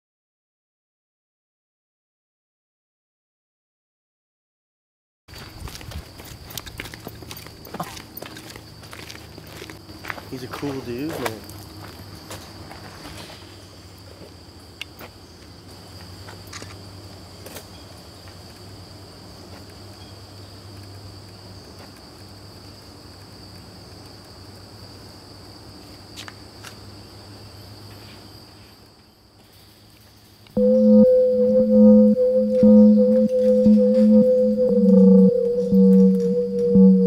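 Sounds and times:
high-pitched insect drone: 0:30.6 - 0:37.0.

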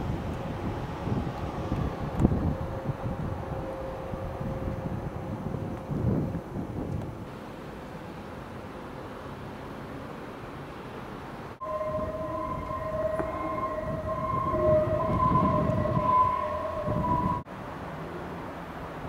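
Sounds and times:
wind on microphone: 0:00.0 - 0:07.3, 0:11.6 - 0:17.4
two-note mechanical whine: 0:11.6 - 0:17.4.

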